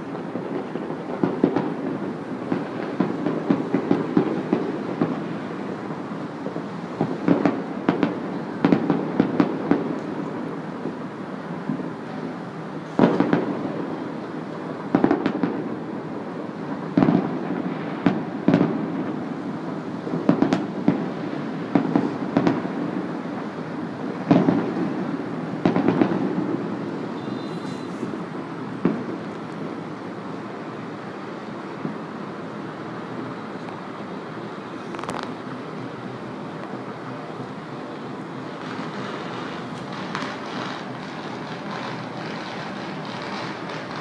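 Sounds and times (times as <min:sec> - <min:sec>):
distant fireworks bangs: 0:00.0 - 0:12.0, 0:13.0 - 0:29.3, 0:38.5 - 0:44.0.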